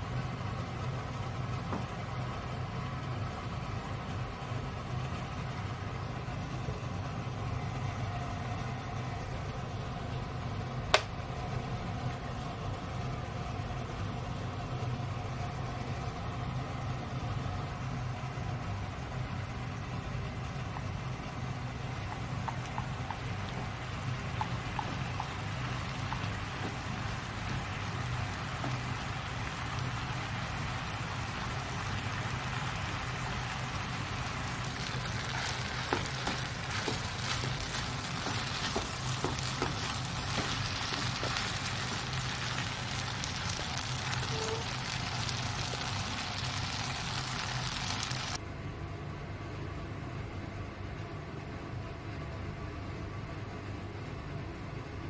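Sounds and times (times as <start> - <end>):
steady low hum: 0.0 - 55.0
noodles sizzling in a frying pan: 21.8 - 48.4.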